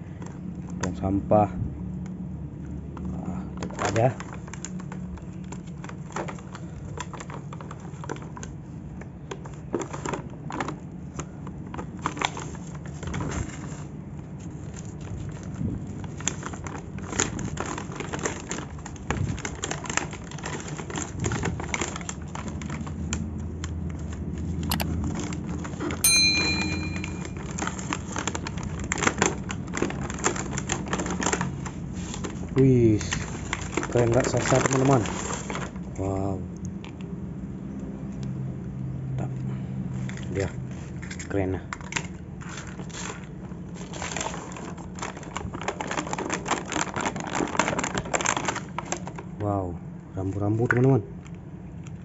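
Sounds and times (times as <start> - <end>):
plastic packaging crinkling: 3.6 - 36.0, 40.0 - 49.4
low steady hum: 24.5 - 29.0.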